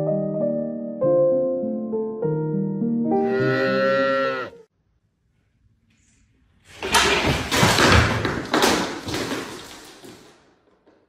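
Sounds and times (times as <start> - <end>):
loud clattering and scraping: 6.7 - 11.0.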